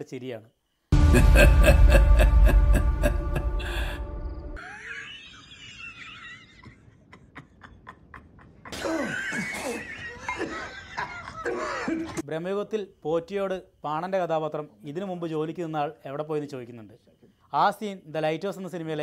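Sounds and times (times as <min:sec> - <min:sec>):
music: 0:00.9 - 0:04.6
man laughing: 0:01.0 - 0:12.2.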